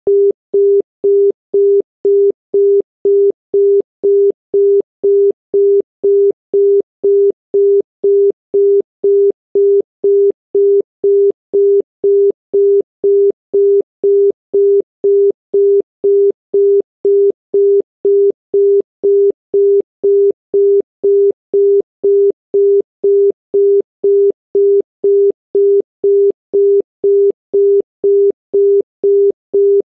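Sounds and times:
dial tone beeping: 0:00.1 - 0:29.9.

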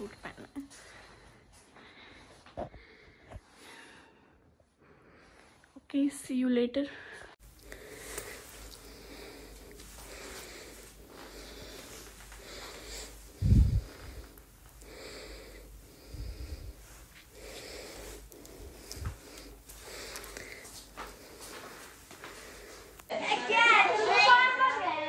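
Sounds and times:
breath-like noise on microphone: 0:07.0 - 0:23.1.

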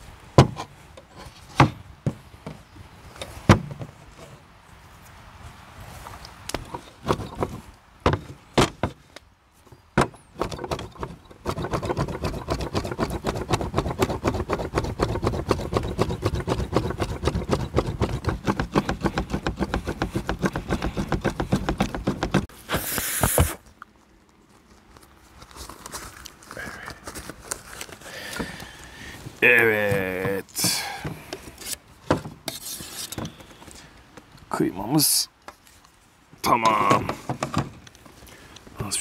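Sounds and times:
rasping noise: 0:10.3 - 0:23.6.

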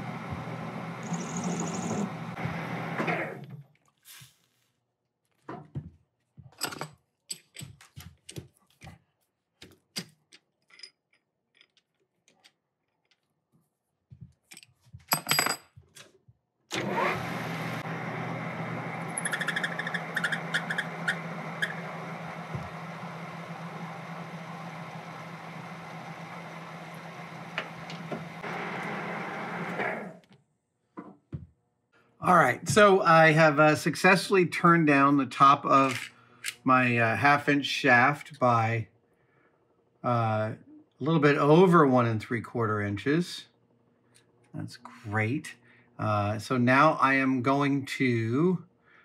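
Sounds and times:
metal lathe running: 0:00.0 - 0:02.4, 0:16.8 - 0:29.8
tools and parts clicking: 0:06.6 - 0:08.4, 0:09.7 - 0:13.3, 0:14.4 - 0:16.2, 0:35.8 - 0:36.6.

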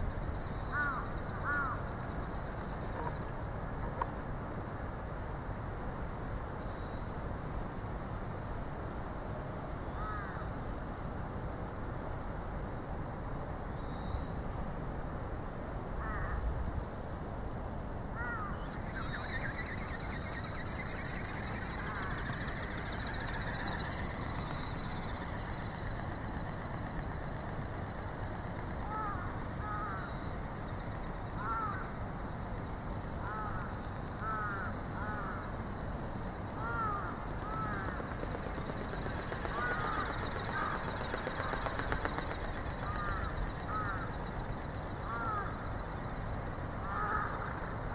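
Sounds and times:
birds calling: 0:00.0 - 0:03.3, 0:18.2 - 0:47.9
steady high hiss: 0:17.8 - 0:47.9.

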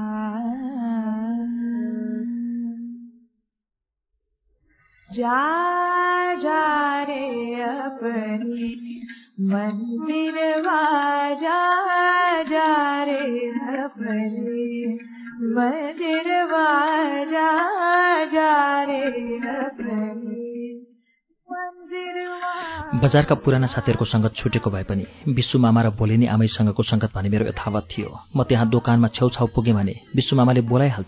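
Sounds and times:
woman singing solo: 0:21.5 - 0:24.7.

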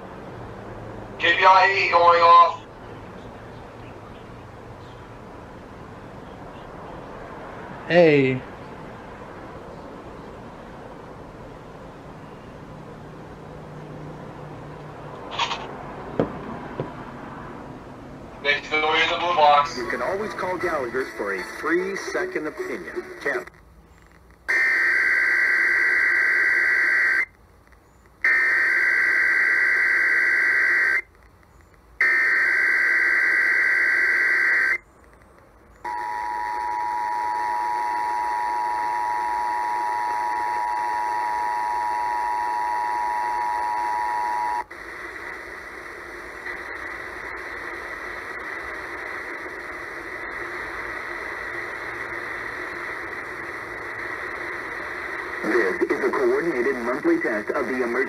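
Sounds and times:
radio static hiss: 0:01.2 - 0:02.7, 0:15.3 - 0:15.7, 0:18.4 - 0:27.4, 0:28.2 - 0:58.0.

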